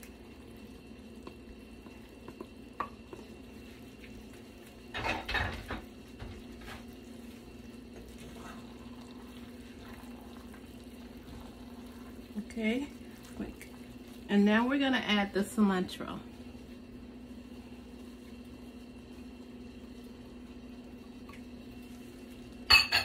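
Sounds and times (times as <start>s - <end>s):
low steady hum: 0.0s - 23.0s
wooden spoon stirring in metal pot: 1.2s - 19.2s.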